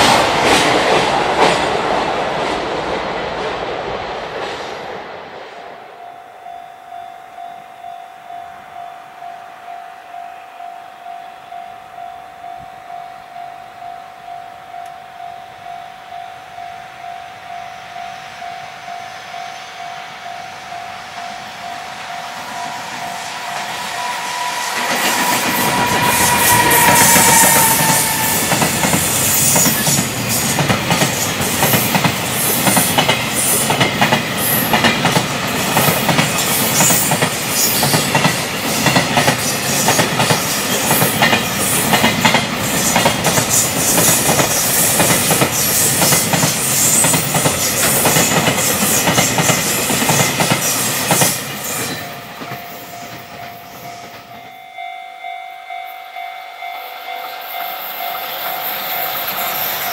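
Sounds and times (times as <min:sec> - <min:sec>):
freight train wheels clattering: 0:00.0 - 0:05.0, 0:22.4 - 0:54.6.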